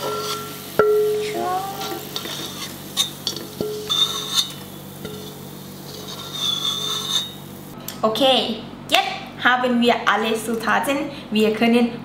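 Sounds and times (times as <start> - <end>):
oil sizzling: 0.0 - 7.8.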